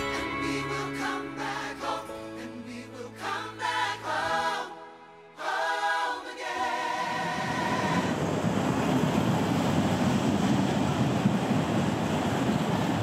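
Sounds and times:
sung music: 0.0s - 7.9s
freight train rumbling past: 6.5s - 13.0s.

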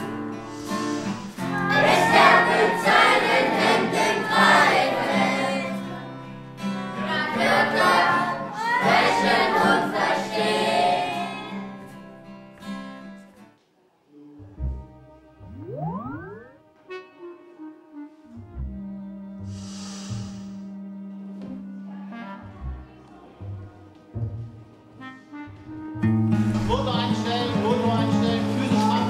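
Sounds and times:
children singing together: 1.5s - 6.0s, 7.0s - 11.5s.

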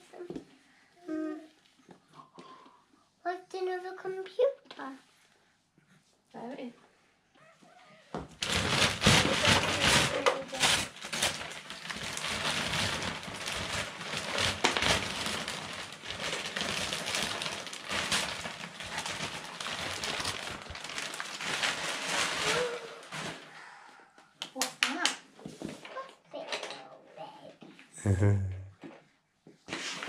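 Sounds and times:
wrapping paper tearing: 8.4s - 23.5s.

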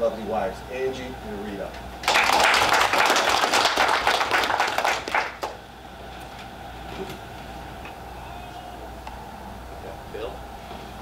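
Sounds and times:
audience applauding: 2.0s - 5.6s.

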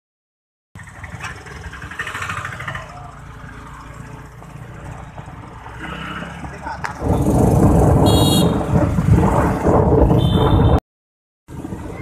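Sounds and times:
car engines running: 0.8s - 10.4s
auto-rickshaw engine: 0.8s - 10.8s, 11.5s - 12.0s
motorcycle engines: 0.8s - 10.8s, 11.5s - 12.0s.

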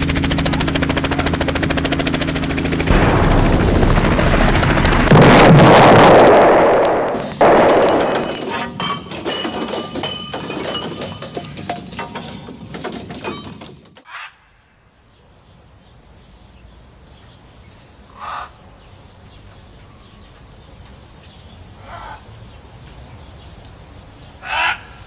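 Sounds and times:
dense clinking clatter: 7.3s - 14.0s
short bird calls: 14.1s - 14.7s, 18.1s - 18.8s, 24.4s - 25.0s.

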